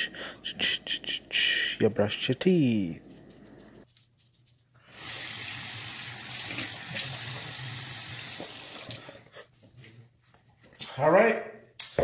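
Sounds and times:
water running into basin: 4.9 - 9.2
sink tap turning on: 5.0 - 9.0.

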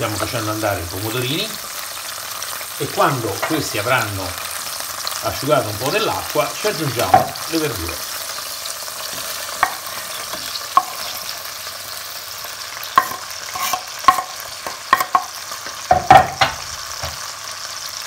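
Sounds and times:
tomatoes sizzling in oil: 0.0 - 18.0
knife scraping cutting board: 13.0 - 15.2.

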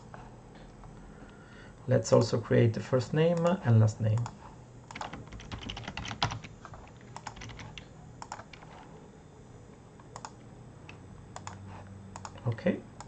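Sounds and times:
computer keyboard keystrokes: 4.2 - 8.8, 10.1 - 11.6, 12.2 - 12.6.

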